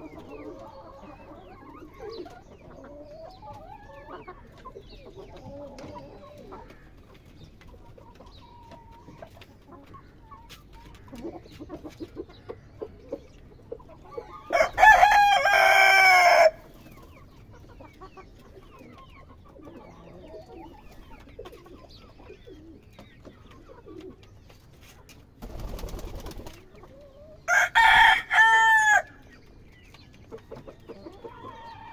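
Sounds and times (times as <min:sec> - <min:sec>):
hens clucking softly: 0:00.0 - 0:27.5, 0:28.8 - 0:31.9
rooster crowing: 0:14.5 - 0:16.6, 0:27.5 - 0:29.2.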